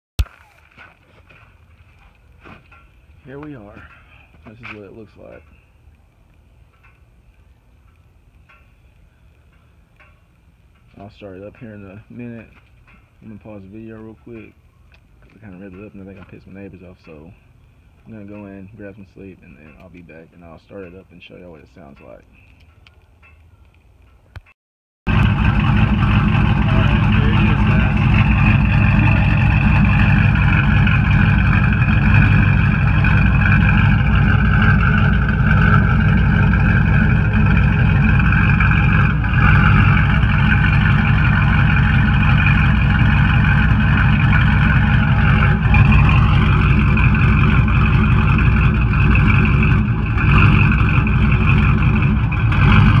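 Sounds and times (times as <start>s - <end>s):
truck engine idling: 25.1s - 53.0s.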